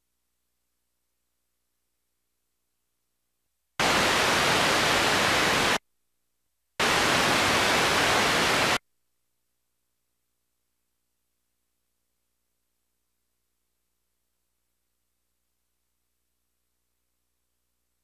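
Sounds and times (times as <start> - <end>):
loud static hiss: 3.8 - 5.8, 6.8 - 8.8.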